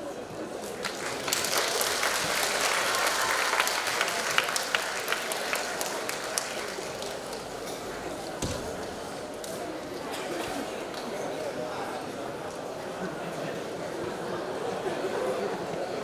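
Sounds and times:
audience applauding: 0:00.6 - 0:07.7.

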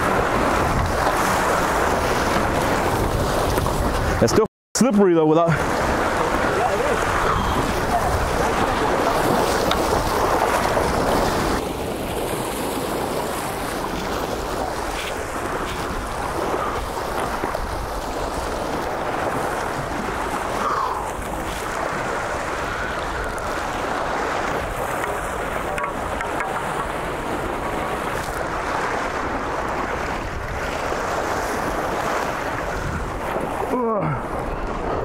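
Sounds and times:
wind buffeting microphone: 0:00.0 - 0:04.4, 0:05.6 - 0:35.0
surf washing against rocks: 0:00.0 - 0:35.0.

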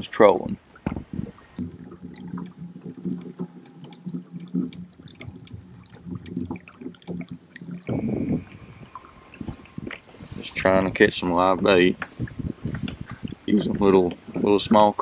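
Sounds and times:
waves lapping against kayak hull: 0:00.2 - 0:15.0.

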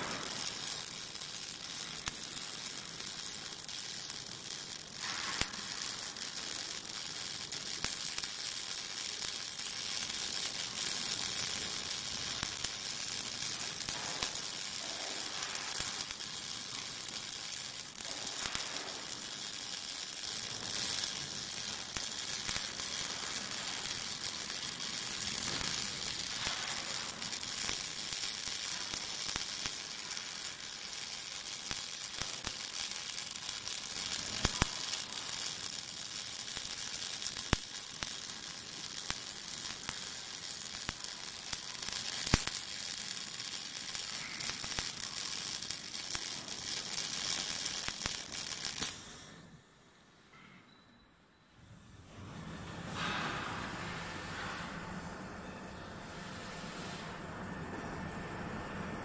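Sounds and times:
sharp welding pops: 0:00.0 - 0:49.4, 0:52.9 - 0:54.6
welding arc crackling sizzle: 0:00.0 - 0:50.0, 0:52.6 - 0:59.0.

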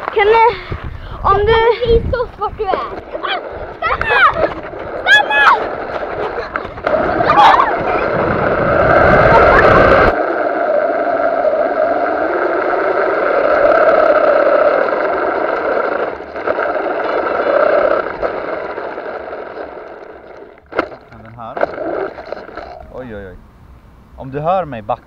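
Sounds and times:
rough rumble: 0:00.0 - 0:23.6
electric motor whining: 0:03.0 - 0:22.6.

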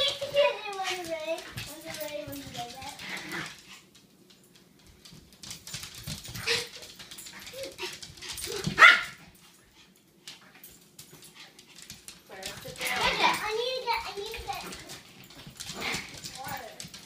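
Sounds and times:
small dogs barking and yipping: 0:06.0 - 0:09.5.

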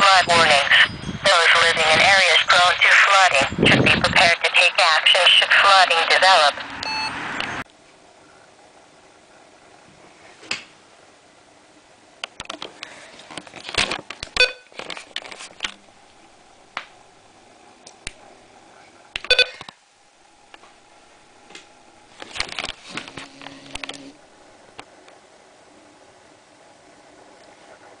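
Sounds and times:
short electronic beeps: 0:06.8 - 0:07.6, 0:14.4 - 0:14.7, 0:19.2 - 0:19.6
radios being handled: 0:12.2 - 0:17.0, 0:21.4 - 0:24.1.

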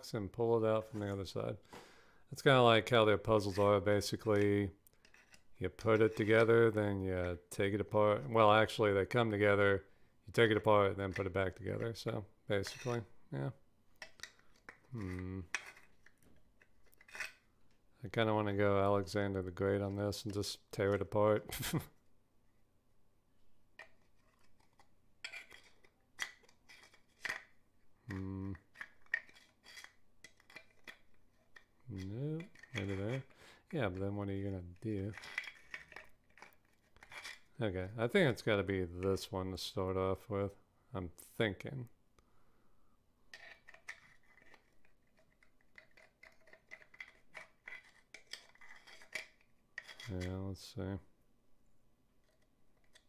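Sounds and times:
puzzle box clicks and scrapes: 0:00.8 - 0:06.7, 0:10.4 - 0:13.1, 0:14.0 - 0:17.8, 0:23.8 - 0:37.6, 0:43.3 - 0:50.4, 0:52.2 - 0:53.0.

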